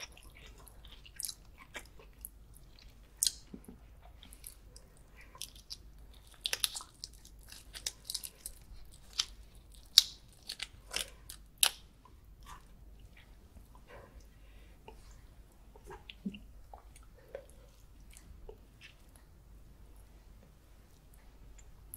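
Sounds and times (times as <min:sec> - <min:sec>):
prawn shell cracking: 0:05.4 - 0:11.9.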